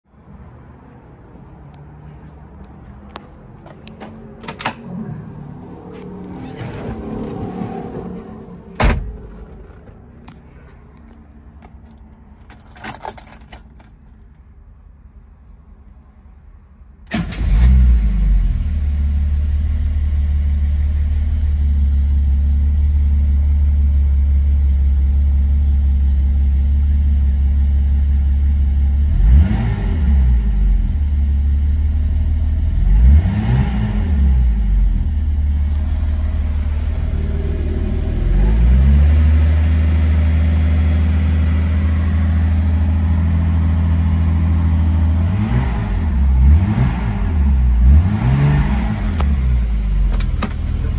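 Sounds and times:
car engine starting and idling: 0:01.1 - 0:50.9
engine revving: 0:29.0 - 0:31.0, 0:32.6 - 0:50.9.

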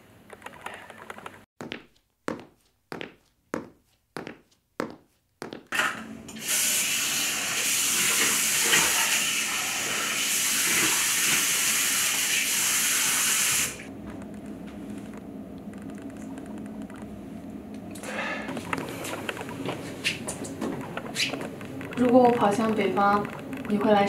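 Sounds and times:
footsteps on hard floor: 0:01.6 - 0:05.8, 0:18.5 - 0:22.3
water running into washbasin: 0:05.8 - 0:13.9.

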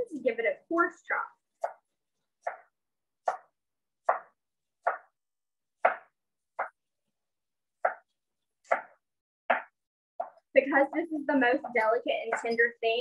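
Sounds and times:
knife chopping on cutting board: 0:01.6 - 0:05.1, 0:05.8 - 0:06.8, 0:07.7 - 0:10.4.

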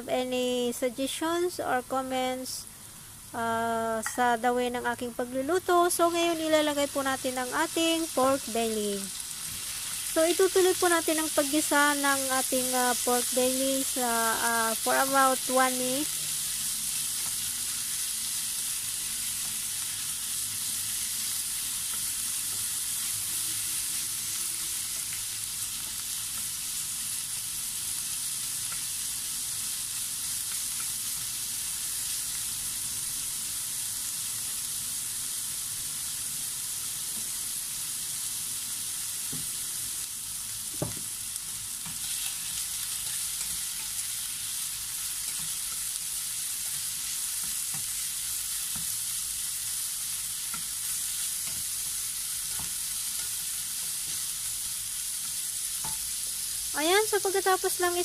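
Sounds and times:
meat sizzling in hot oil: 0:00.1 - 0:58.0.

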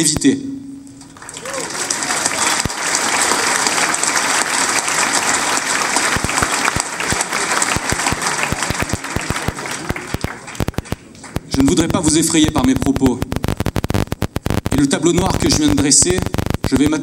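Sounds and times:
audience applauding: 0:01.0 - 0:12.6.

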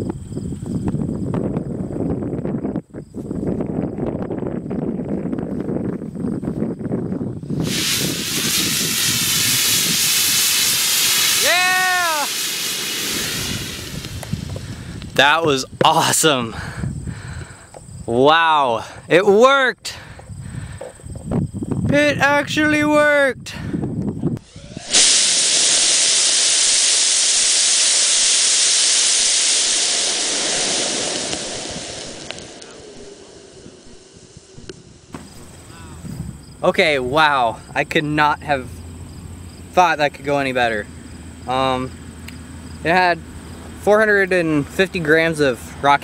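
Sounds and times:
rocket motor hissing: 0:07.5 - 0:15.7, 0:24.4 - 0:35.8
whooping tone: 0:11.2 - 0:12.6, 0:24.4 - 0:26.8.

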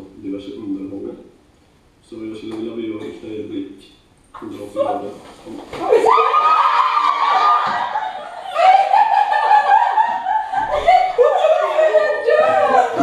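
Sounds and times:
audience laughing: 0:07.7 - 0:13.0.

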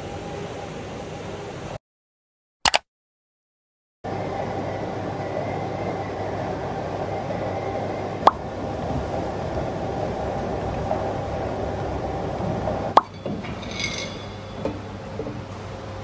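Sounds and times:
sharp click: 0:02.6 - 0:02.8
treadmill motor and belt: 0:04.1 - 0:16.0.

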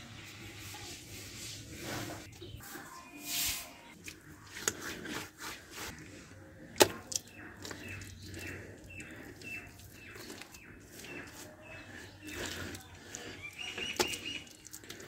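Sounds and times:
hand scraping damp mud: 0:00.5 - 0:15.0
bird chirping: 0:07.1 - 0:14.7.

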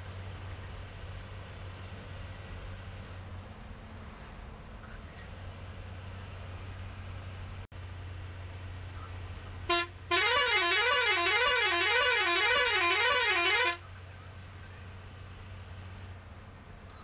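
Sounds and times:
bus engine hum: 0:00.0 - 0:17.0
bus musical horn warbling: 0:09.7 - 0:13.9.

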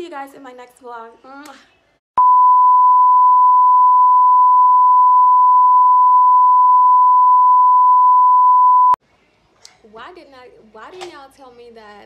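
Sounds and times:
steady test tone beep: 0:02.2 - 0:09.0.

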